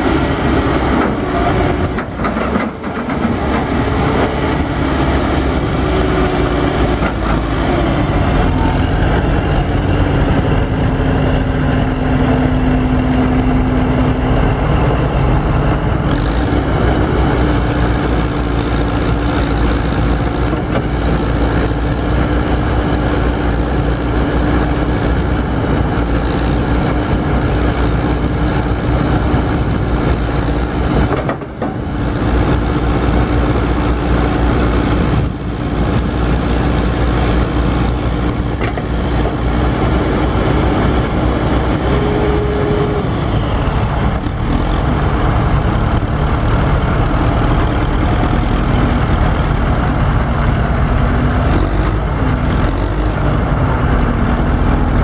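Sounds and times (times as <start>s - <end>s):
diesel engine idling: 24.8s - 55.0s.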